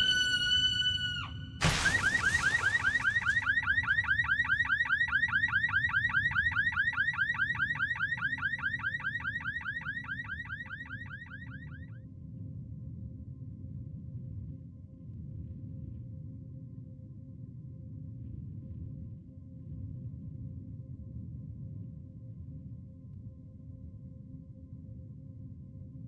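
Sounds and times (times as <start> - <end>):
electronic warbling tone: 0.0 - 3.6
rapid falling chirps: 0.0 - 4.0
sharp hit: 1.6 - 3.4.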